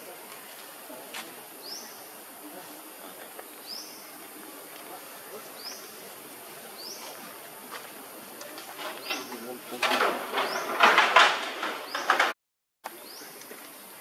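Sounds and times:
high hiss of insects: 0.0s - 9.4s, 13.0s - 14.0s.

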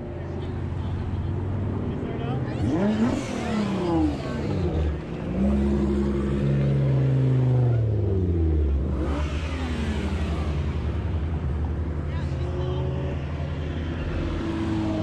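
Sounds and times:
cars driving slowly past: 0.0s - 15.0s.

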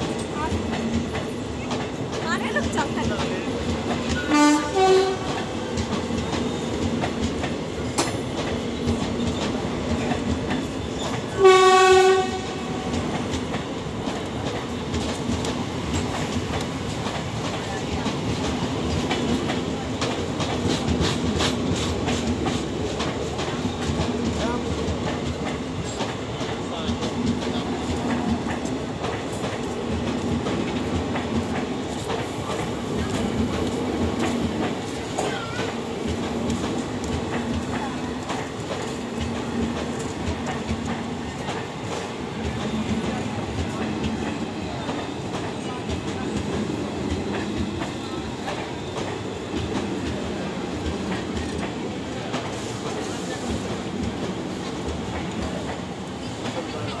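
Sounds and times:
train wheels clattering on rails: 0.0s - 57.0s
locomotive horn: 4.3s - 5.3s, 11.4s - 12.7s.

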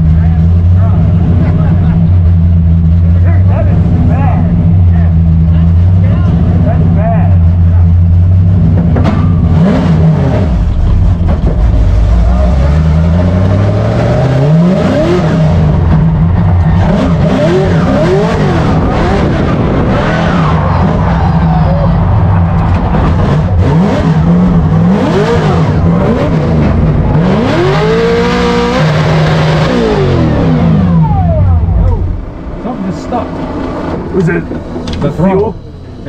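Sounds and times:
car engine revving: 0.0s - 36.0s
tires squealing: 8.6s - 36.0s.

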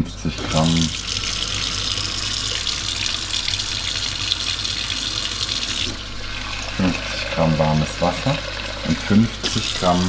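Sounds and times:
tap water running into steel sink: 0.4s - 10.0s.

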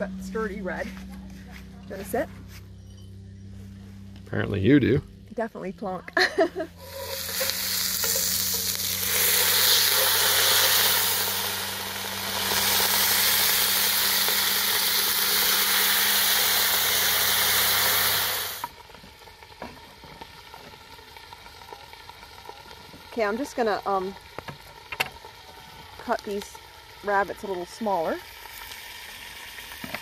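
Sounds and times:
wine sizzling in hot pot: 6.2s - 30.0s.

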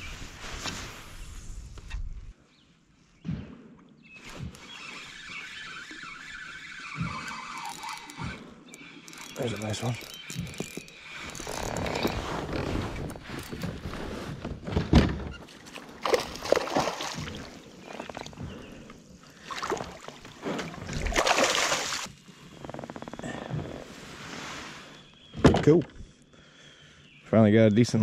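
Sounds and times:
fish splashing in water: 15.8s - 17.7s, 19.4s - 22.1s.

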